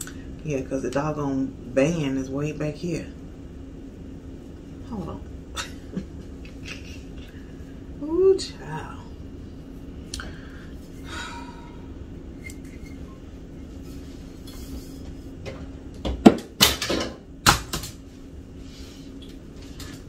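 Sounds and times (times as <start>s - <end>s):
kitchenware knocking and clattering: 15.5s - 17.2s.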